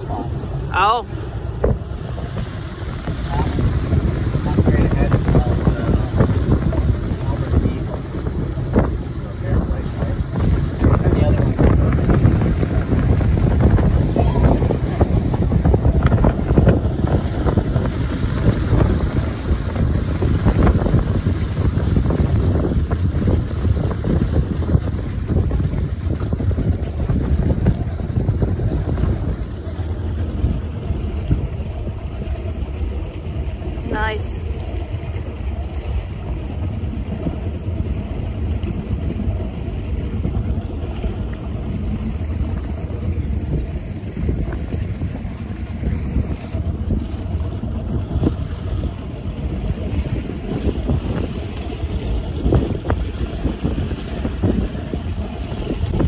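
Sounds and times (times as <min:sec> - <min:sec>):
low rumble of boat and water: 0:00.0 - 0:56.0
motorboat engine drone: 0:00.0 - 0:56.0
wind buffeting microphone: 0:00.0 - 0:56.0.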